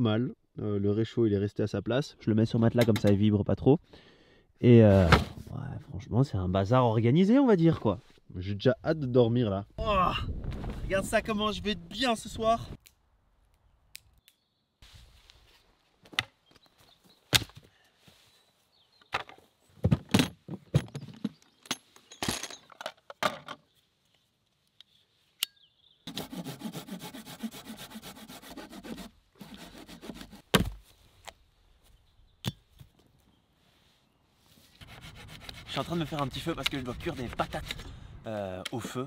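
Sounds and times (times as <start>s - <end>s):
hand saw cutting a branch: 26.1s - 30.7s, 34.8s - 37.8s.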